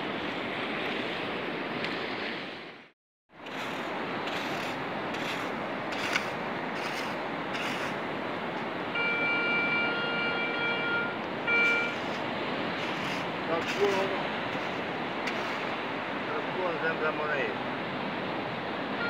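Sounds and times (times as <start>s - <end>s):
sand scoop scraping wet sand: 3.4s - 8.0s, 11.6s - 15.8s
surf: 3.4s - 8.5s, 10.9s - 19.0s
metal detector tone: 9.0s - 12.2s.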